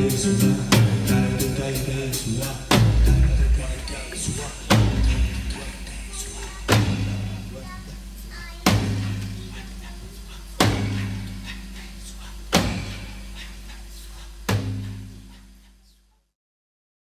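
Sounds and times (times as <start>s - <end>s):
low bass drone: 0.0s - 6.2s
heavy drum hits: 0.0s - 7.6s, 8.6s - 9.8s, 10.6s - 11.8s, 12.5s - 13.3s, 14.5s - 15.2s.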